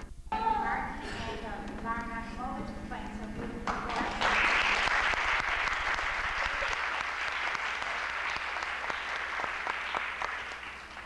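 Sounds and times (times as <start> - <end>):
audience applause: 3.7 - 11.0.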